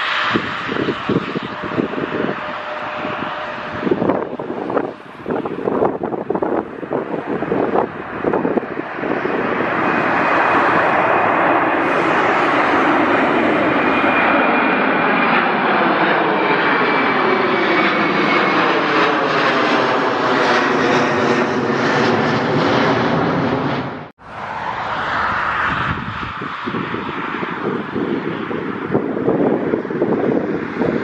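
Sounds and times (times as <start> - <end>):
faint high engine whine: 0.0 - 9.6
jet engines rushing overhead: 0.0 - 31.0.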